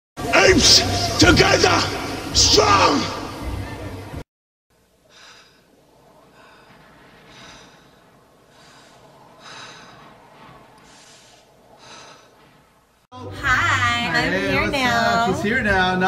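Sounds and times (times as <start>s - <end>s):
heavy breathing puffs: 5.1s - 12.8s.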